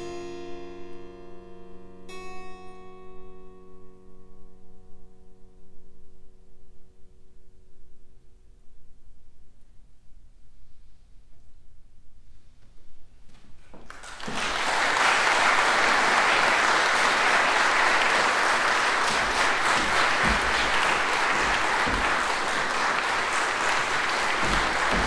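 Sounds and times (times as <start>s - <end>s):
audience applause: 13.8s - 25.0s.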